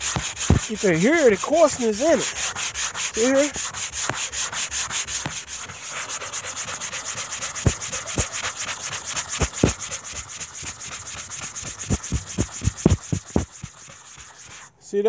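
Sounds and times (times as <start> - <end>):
dull thumps: 0.0 - 1.6, 2.8 - 5.8, 7.4 - 14.6
sanding sponge rasping on paint: 0.0 - 14.7.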